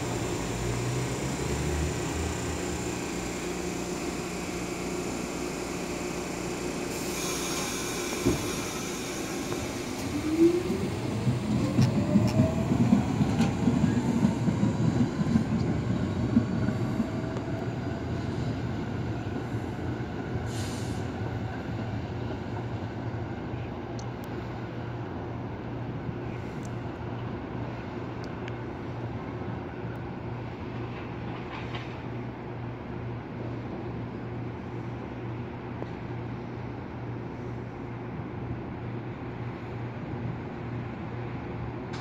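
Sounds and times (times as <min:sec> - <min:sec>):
subway train motors whining: 0:00.0 - 0:42.0
train knock: 0:07.6 - 0:09.8.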